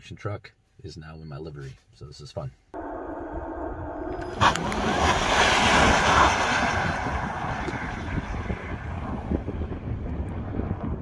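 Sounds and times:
truck passing at speed: 2.8s - 11.0s
wind buffeting microphone: 2.8s - 11.0s.

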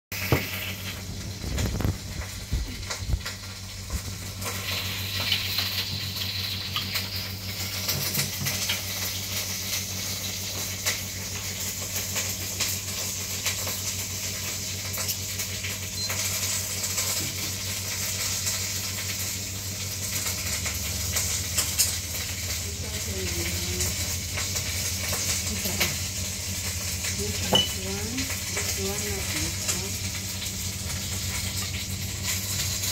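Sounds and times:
small crackles: 0.5s - 27.4s, 28.0s - 32.9s.

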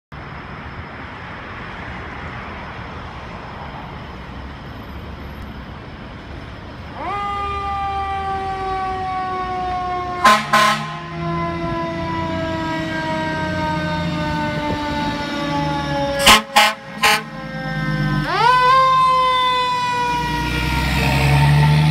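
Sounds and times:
fire engine rumble: 0.1s - 21.9s
fire engine siren: 0.8s - 21.9s
air horn blasts: 10.2s - 11.1s, 16.2s - 17.4s.

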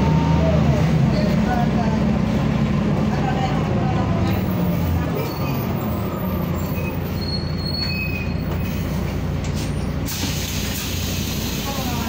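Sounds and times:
bus diesel engine drone: 0.0s - 12.0s
brief high squeals: 6.5s - 8.5s.

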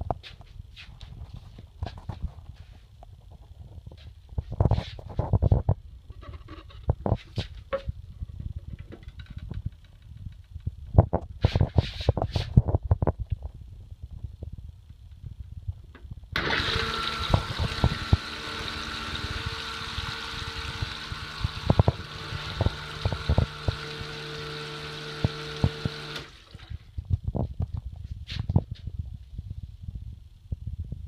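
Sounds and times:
flush liquid swirling: 16.4s - 26.8s
toilet pump humming: 16.4s - 26.8s.

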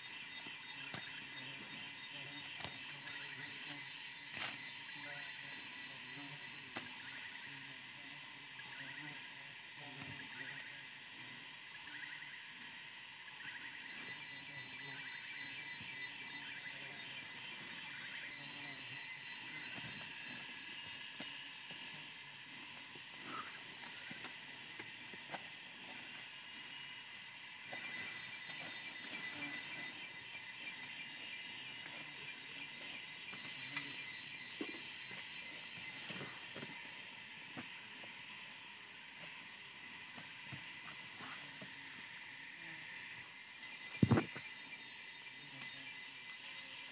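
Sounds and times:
insects buzzing: 0.0s - 46.9s.

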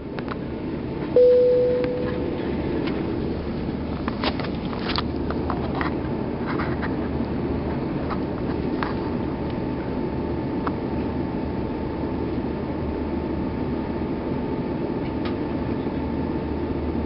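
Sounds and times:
airplane cabin noise: 0.0s - 17.0s
cabin chime: 1.2s - 2.6s.

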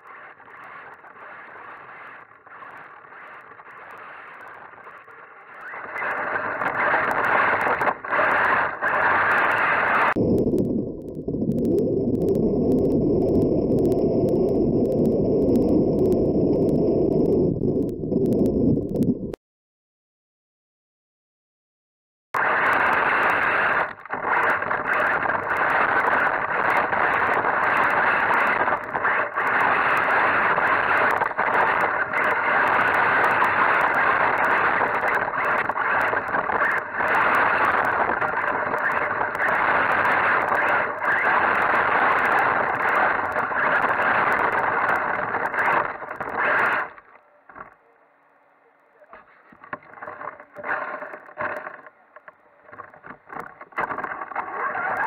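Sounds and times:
sharp clicks and knocks: 49.1s - 54.4s.

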